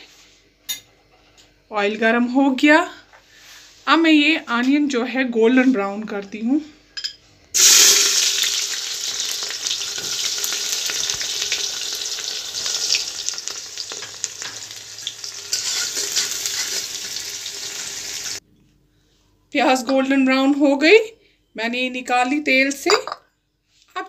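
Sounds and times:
onions sizzling in oil: 0:07.6 - 0:18.4
spoon scraping and clicking: 0:15.5 - 0:16.9.

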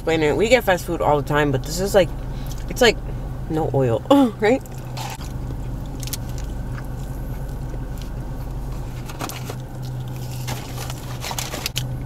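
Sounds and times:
car engine low hum: 0:00.0 - 0:12.0
food packaging rustling: 0:08.7 - 0:11.9.

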